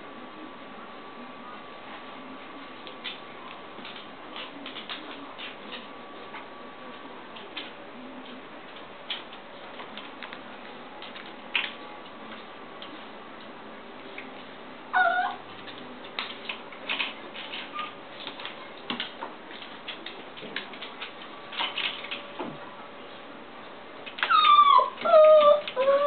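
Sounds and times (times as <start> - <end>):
dog whining: 14.9 - 15.4, 24.2 - 26.0.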